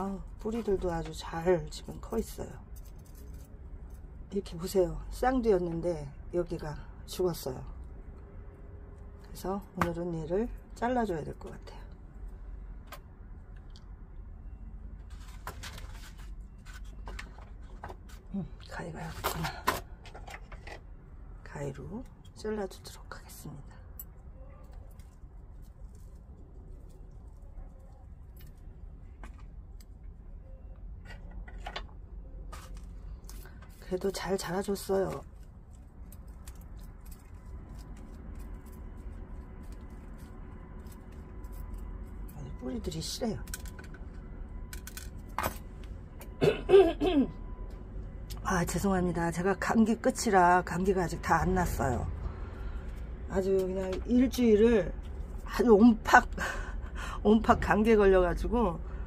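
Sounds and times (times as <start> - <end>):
hands crunching a root ball: 32.6 - 42.5.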